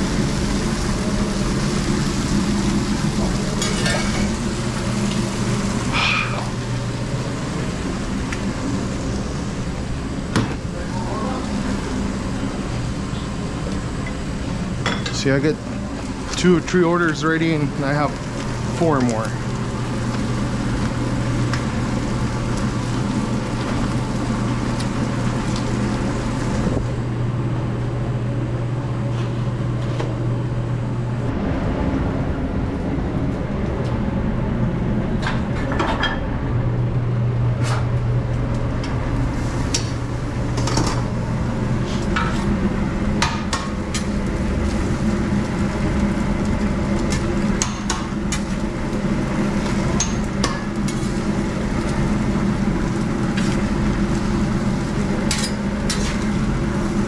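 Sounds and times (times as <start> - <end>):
food sizzling on a griddle: 0.0 - 9.7
steady low hum: 0.0 - 57.0.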